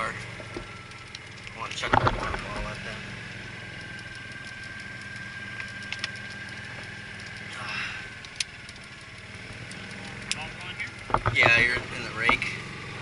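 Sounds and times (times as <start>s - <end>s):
golf cart low hum: 0.0s - 13.0s.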